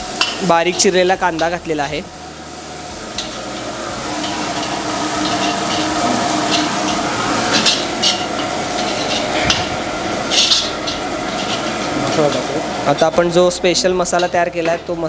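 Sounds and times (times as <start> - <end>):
onion sizzling in hot oil: 0.0 - 15.0
ladle scraping pan: 3.0 - 12.5.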